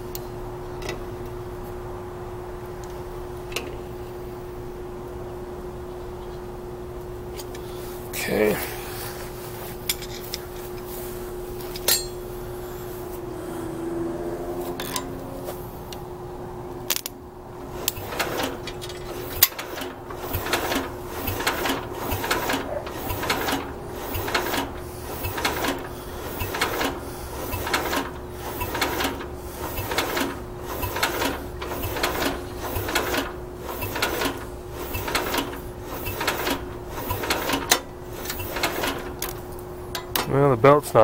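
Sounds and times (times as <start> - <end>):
engine cranking slowly: 17.6 - 40.2.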